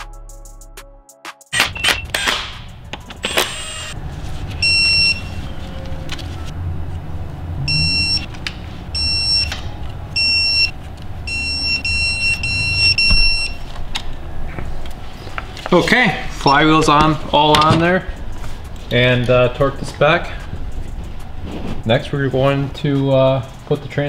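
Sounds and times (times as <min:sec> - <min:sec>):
torque wrench electronic beeps: 0:01.6 - 0:02.3, 0:04.6 - 0:05.4, 0:07.6 - 0:08.3, 0:09.0 - 0:09.5, 0:10.2 - 0:10.7, 0:11.3 - 0:13.6
low steady hum: 0:04.0 - 0:17.4.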